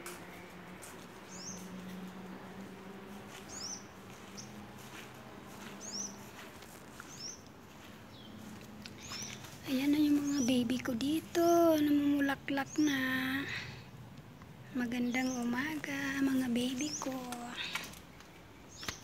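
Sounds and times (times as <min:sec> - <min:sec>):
small bird chirping: 0:05.8 - 0:07.5, 0:08.1 - 0:13.4, 0:14.4 - 0:19.0.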